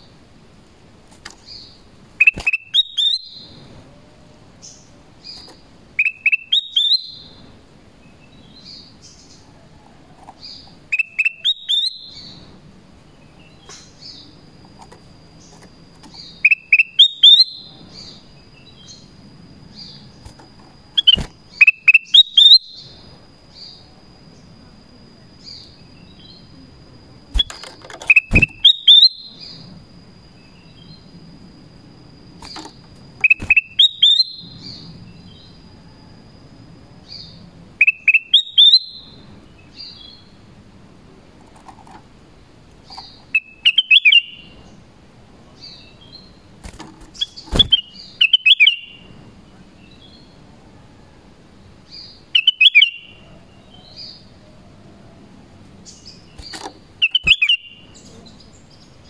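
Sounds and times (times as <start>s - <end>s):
bird whistling rising notes: 16.4s - 17.8s, 27.4s - 29.5s, 33.2s - 34.8s, 57.0s - 57.8s.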